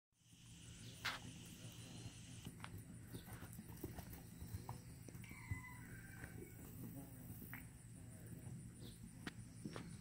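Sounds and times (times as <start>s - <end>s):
horse hooves on grass: 1.0s - 7.8s.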